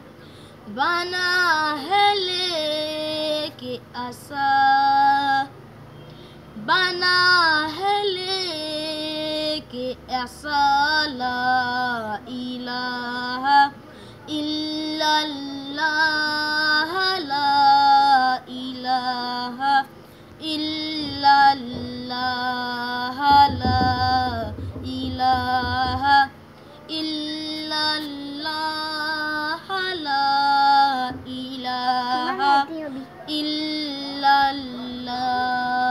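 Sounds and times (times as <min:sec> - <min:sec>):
boy singing unaccompanied: 0:00.6 - 0:05.6, 0:06.6 - 0:35.9.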